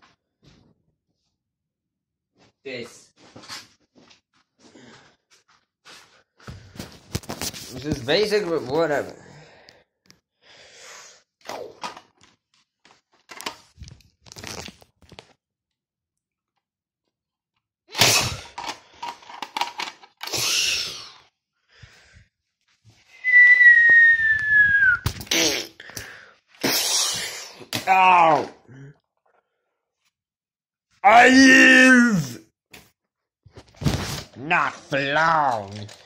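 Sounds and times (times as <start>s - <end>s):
whistled note: 23.1s - 25.1s.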